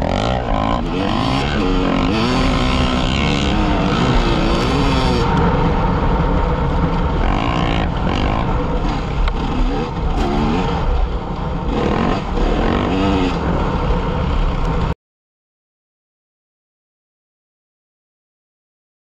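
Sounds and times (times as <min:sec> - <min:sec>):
motorcycle engine revving: 0:00.0 - 0:15.0.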